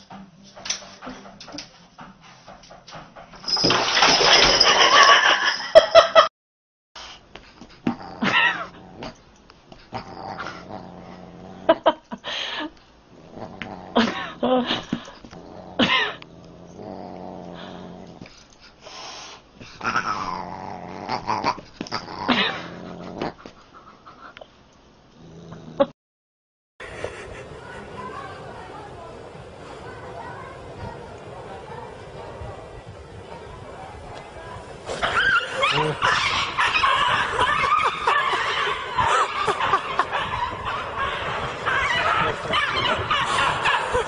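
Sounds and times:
dog sounds: 34.1s - 44.0s
cats yowling and meowing: 35.0s - 44.0s.

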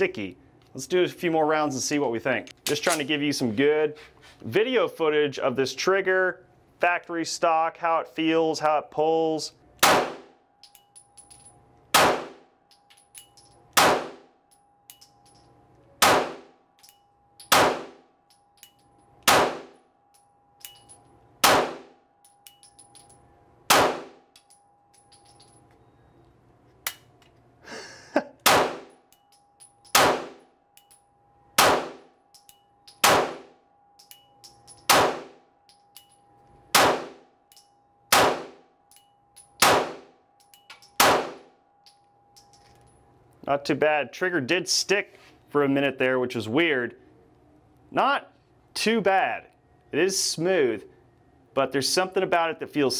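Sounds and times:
pistol shots with ringing tail: 9.8s - 10.8s, 11.9s - 12.5s, 13.7s - 14.4s, 16.0s - 16.7s, 17.4s - 18.1s, 19.2s - 19.9s, 21.4s - 22.0s, 23.7s - 24.3s, 28.4s - 29.0s, 29.6s - 30.5s, 31.5s - 32.2s, 32.9s - 35.5s, 36.7s - 37.3s, 38.1s - 38.8s, 39.5s - 40.2s, 40.8s - 41.6s.

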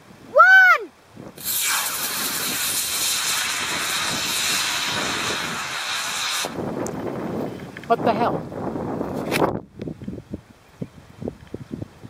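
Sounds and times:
rocket motor hissing loudly: 1.4s - 6.7s
rocket motor igniting: 1.4s - 7.0s.

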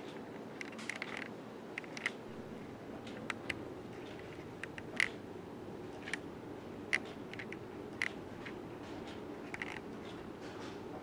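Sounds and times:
ceiling fan whirring: 0.0s - 11.0s
sharp clicks: 0.1s - 2.2s, 3.0s - 5.2s, 6.9s - 10.2s.

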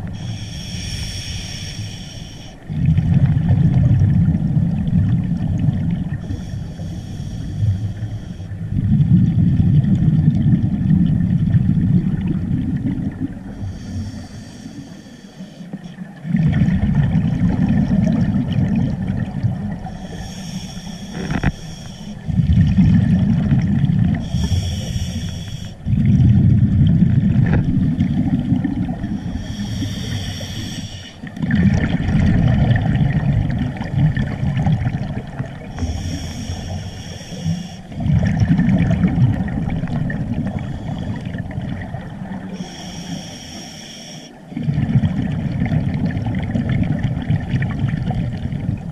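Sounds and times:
scuba regulator hissing inhales: 0.0s - 2.7s, 6.2s - 8.5s, 13.4s - 15.9s, 19.8s - 22.3s, 24.2s - 25.9s, 29.1s - 31.3s, 35.7s - 38.0s, 40.5s - 41.4s, 42.4s - 44.4s
bubbling exhaled air: 0.0s - 15.2s, 15.9s - 48.9s.

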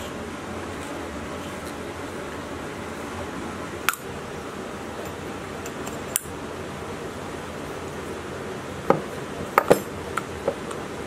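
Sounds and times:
steady background hiss: 0.0s - 11.0s
metal clinks and knocks: 9.6s - 10.0s.

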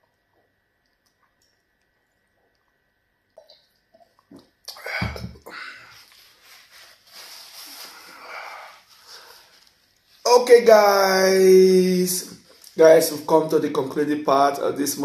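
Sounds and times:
tissue rustling on face: 5.8s - 10.7s.

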